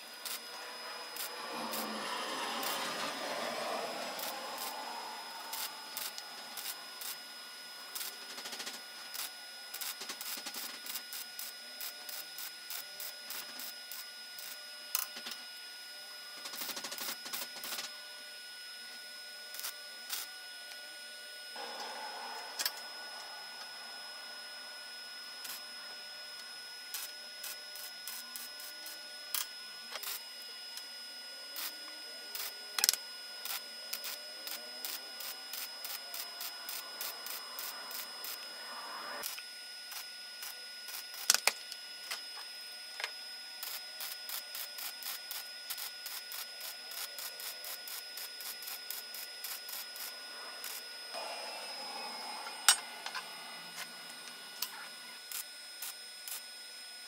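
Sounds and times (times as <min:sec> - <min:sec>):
welding arc crackling: 0:00.0 - 0:07.2, 0:32.4 - 0:40.0, 0:43.6 - 0:50.8
faint high whine: 0:00.0 - 0:57.0.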